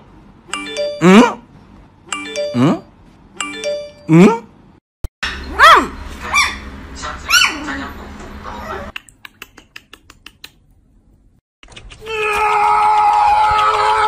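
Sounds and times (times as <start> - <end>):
puppy yipping: 5.2 - 6.7, 7.3 - 7.6.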